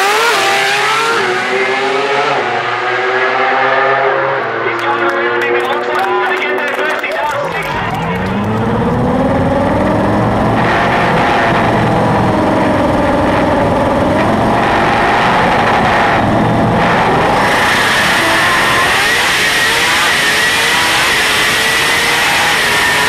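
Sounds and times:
rotary engine running: 7.4 - 23.0.

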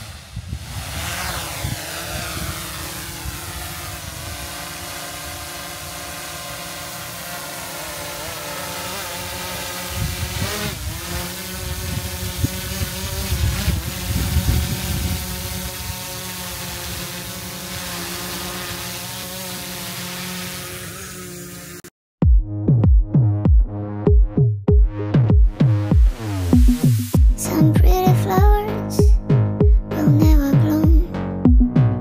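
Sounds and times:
drone propellers whining: 0.0 - 16.5.

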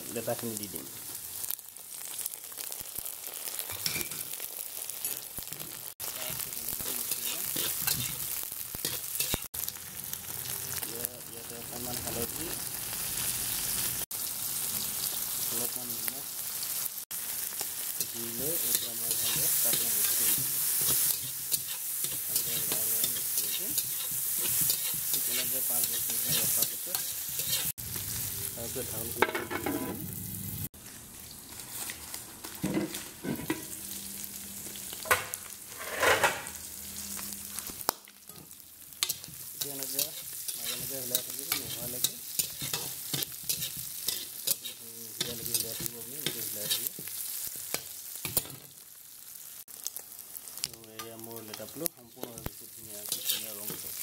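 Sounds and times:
oil sizzling: 0.0 - 54.0
spatula scraping a metal wok: 7.0 - 9.5, 18.6 - 27.7, 35.7 - 36.5, 38.3 - 47.1, 53.0 - 54.0.

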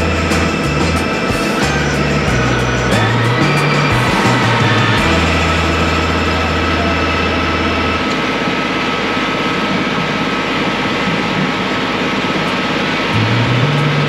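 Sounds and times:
tractor engine running: 1.8 - 8.6.

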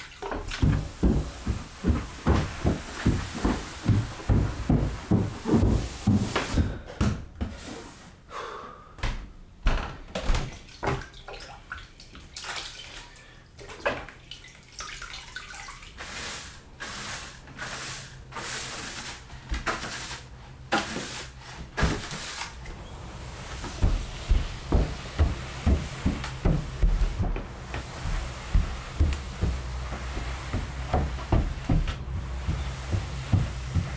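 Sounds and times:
water splashing in a bucket: 0.0 - 1.0, 10.5 - 16.6
water running into a bucket: 0.0 - 4.4, 10.5 - 26.8.

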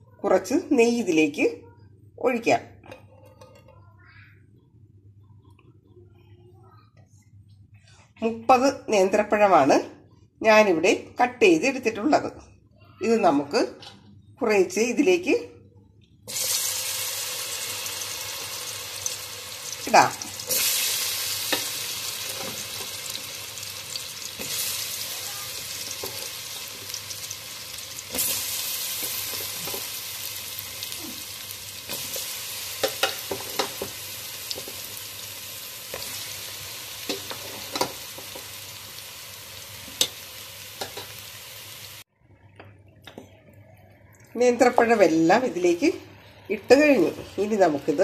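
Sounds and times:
plantains sizzling in hot fat: 16.3 - 42.1, 44.4 - 48.0.

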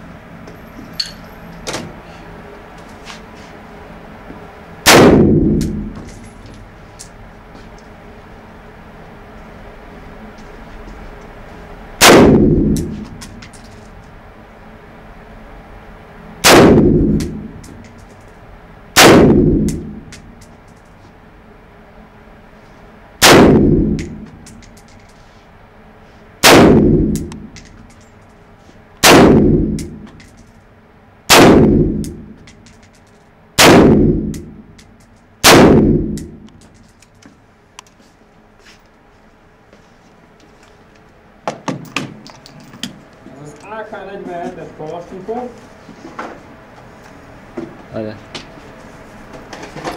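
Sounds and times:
light clinks: 0.7 - 1.4
rifle shots echoing indoors: 4.8 - 6.2, 12.0 - 13.2, 16.4 - 17.8, 18.9 - 20.4, 23.2 - 24.6, 26.4 - 27.7, 29.0 - 30.2, 31.3 - 32.5, 33.6 - 34.7, 35.4 - 36.6.

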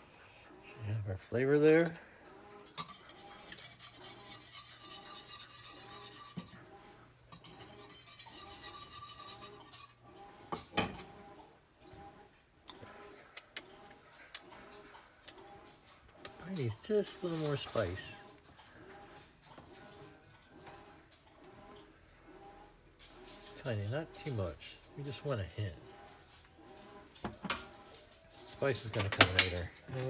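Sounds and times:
utensil scraping skillet: 2.7 - 10.7, 16.4 - 18.2.

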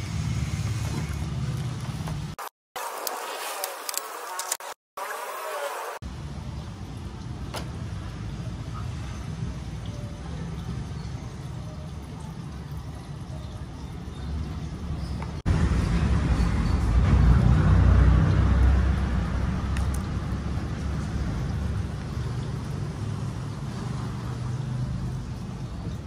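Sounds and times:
passing vehicle engine rumble: 15.4 - 26.0.

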